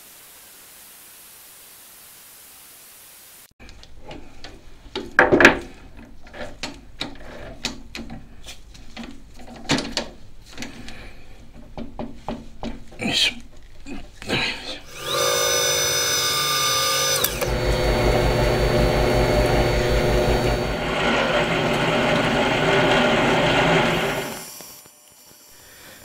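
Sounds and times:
steady hiss: 0:00.0 - 0:03.6, 0:24.3 - 0:26.0.

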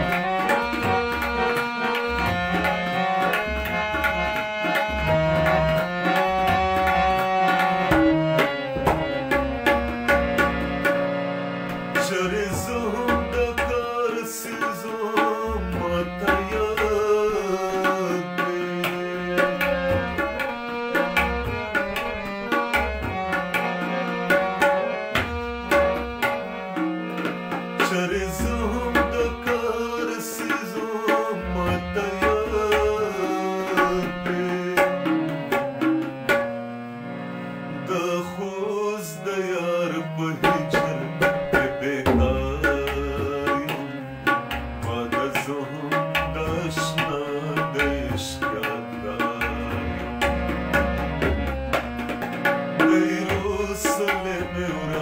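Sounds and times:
tabla drumming: 0:00.0 - 0:36.8, 0:39.9 - 0:55.0
harmonium playing: 0:00.0 - 0:55.0
man singing: 0:11.9 - 0:21.8, 0:27.8 - 0:35.7, 0:37.8 - 0:51.2, 0:52.8 - 0:55.0.

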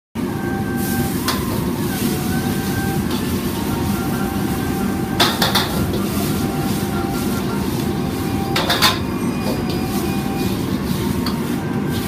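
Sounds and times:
food sizzling in a wok: 0:00.2 - 0:12.0
gas burner rushing: 0:00.2 - 0:12.0
metal ladle clanking on wok: 0:05.2 - 0:06.1, 0:08.6 - 0:09.9.

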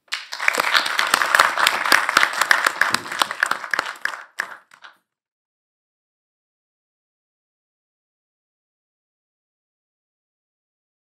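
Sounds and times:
hands clapping: 0:00.0 - 0:05.0.

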